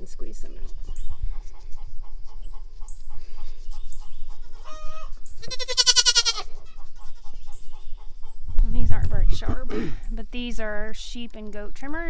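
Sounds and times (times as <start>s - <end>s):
goat kid bleating: 4.3s - 7.3s.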